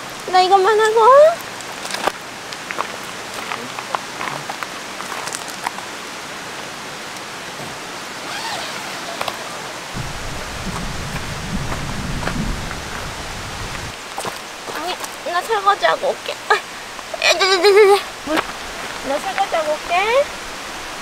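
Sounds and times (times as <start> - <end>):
stream rushing: 0.0 - 21.0
low rumble: 10.0 - 13.9.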